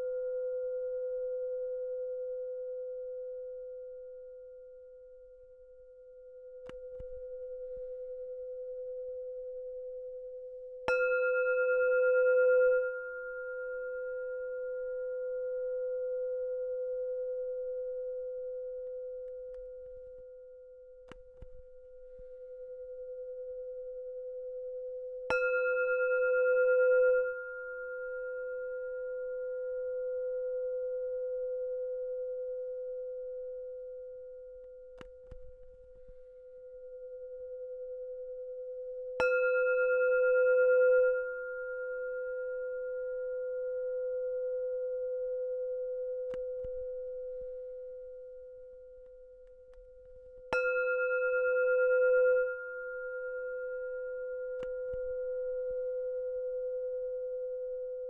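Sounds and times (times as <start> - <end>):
singing bowl ringing: 10.8 - 19.1, 25.3 - 32.6, 38.6 - 48.8, 50.2 - 58.0.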